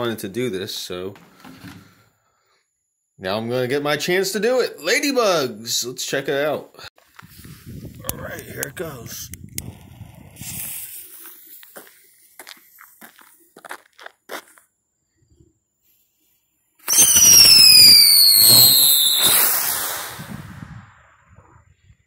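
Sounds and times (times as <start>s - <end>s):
firework whistling shriek: 16.8s - 21.6s.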